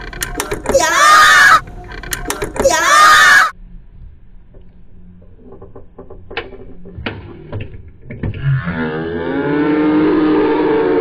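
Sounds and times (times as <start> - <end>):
people laughing and shrieking: 0.7 - 1.6, 2.6 - 3.5.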